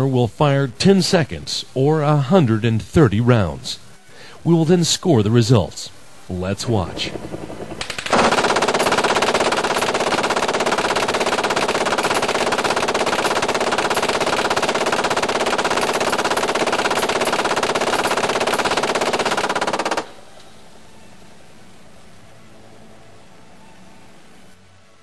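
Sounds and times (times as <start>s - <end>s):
steady background noise: 0.0s - 25.0s
machine gun firing burst: 6.9s - 20.2s.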